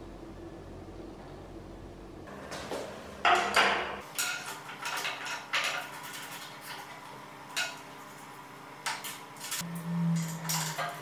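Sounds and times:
metallic clinks and knocks: 0:09.5 - 0:11.0.

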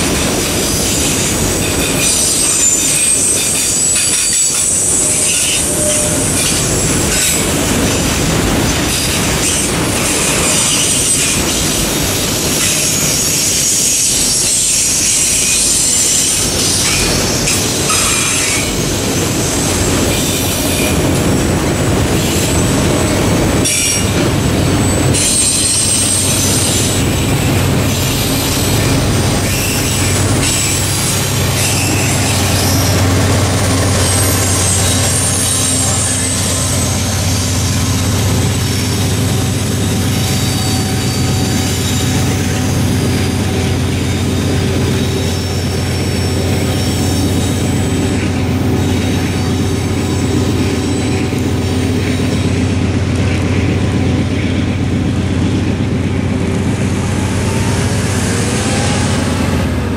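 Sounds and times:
diesel locomotive engine drone: 0:00.0 - 0:59.9
train wheels clacking over rail joints: 0:00.0 - 0:59.9
high-pitched wheel squeal: 0:00.7 - 0:07.5, 0:12.6 - 0:21.0, 0:23.6 - 0:27.0, 0:27.8 - 0:52.9, 0:56.6 - 0:59.9.

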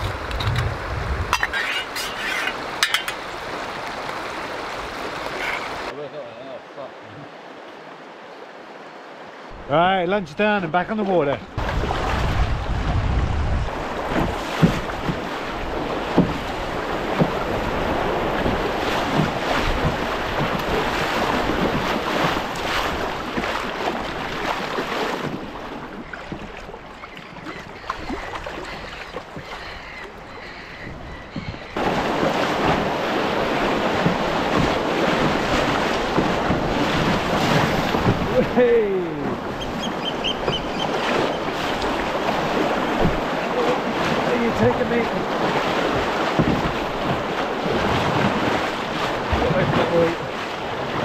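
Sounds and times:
wind buffeting microphone: 0:00.0 - 0:01.5, 0:11.5 - 0:24.5
river water rushing and splashing: 0:00.0 - 0:51.0.

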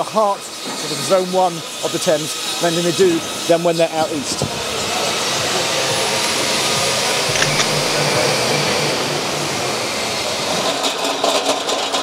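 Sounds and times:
machinery rushing noise: 0:00.0 - 0:12.0.

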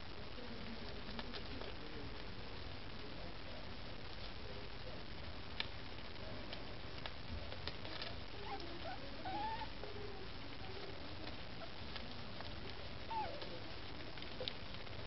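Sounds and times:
kittens squeaking: 0:08.4 - 0:09.8, 0:13.0 - 0:13.5.

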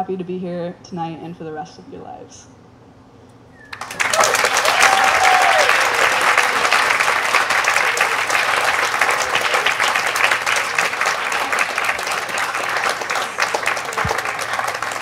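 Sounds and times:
crowd applauding: 0:03.6 - 0:15.0.

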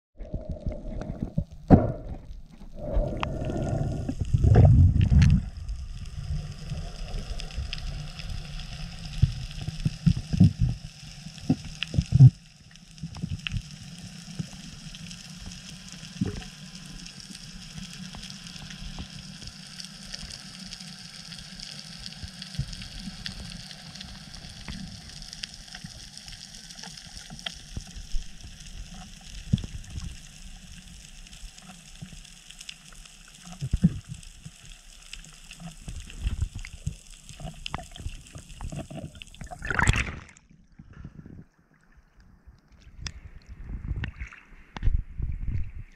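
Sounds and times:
bubbling bursts and clicks: 0:00.2 - 0:08.3, 0:35.6 - 0:41.5
faint crackling hiss: 0:00.2 - 0:40.2
muffled underwater rumble: 0:00.2 - 0:45.9.

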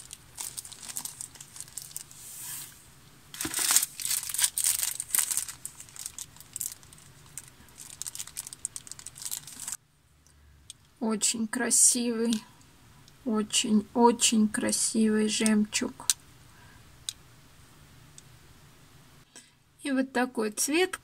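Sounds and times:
packet crinkling: 0:00.0 - 0:02.2, 0:03.3 - 0:09.8.

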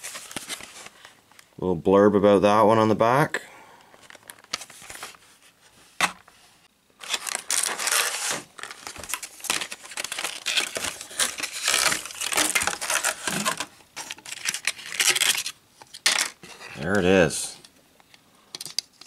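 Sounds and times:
plastic packaging crinkling and tearing: 0:07.0 - 0:16.1.

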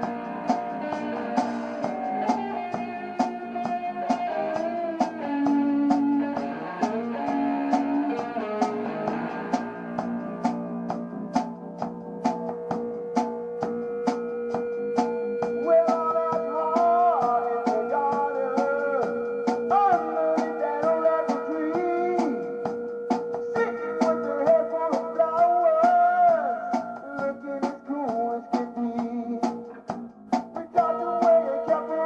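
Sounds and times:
sharp cymbal or snare hits: 0:00.0 - 0:03.4
guitar: 0:00.0 - 0:32.0
rock band instrumental: 0:00.0 - 0:32.0.

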